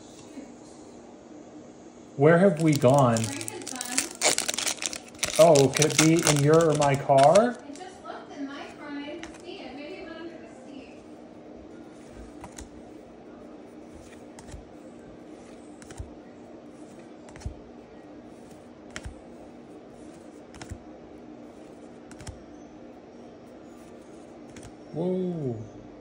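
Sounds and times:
faint low hum: 0:00.0 - 0:26.0
trading cards flicking: 0:02.6 - 0:07.8, 0:18.9 - 0:19.2, 0:22.1 - 0:22.4.

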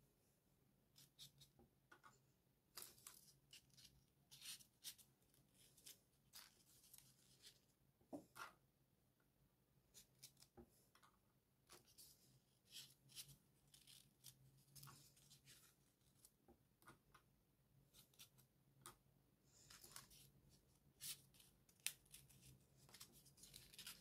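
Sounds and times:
paper rustling and scratching: 0:21.0 - 0:24.0.

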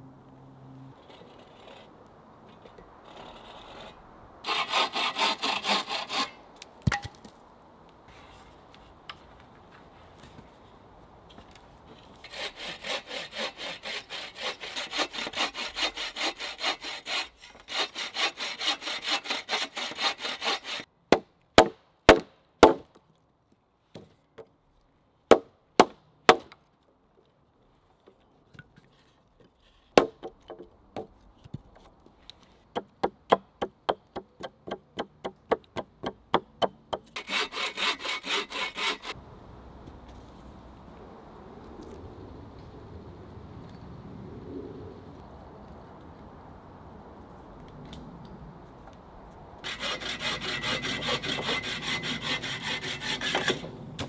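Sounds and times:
bow saw cutting log: 0:03.1 - 0:06.4, 0:12.2 - 0:20.9, 0:37.0 - 0:39.2, 0:49.6 - 0:53.8
axe chopping log: 0:21.1 - 0:22.9, 0:30.0 - 0:30.4.

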